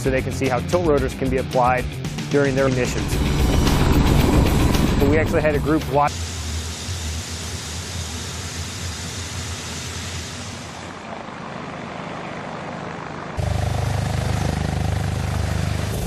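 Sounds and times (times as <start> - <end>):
helicopter rotor chop: 0.0 - 16.0.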